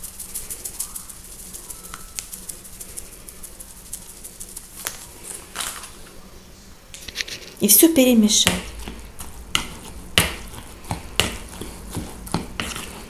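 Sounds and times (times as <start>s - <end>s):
pepper shaker rattling: 0.0s - 6.0s.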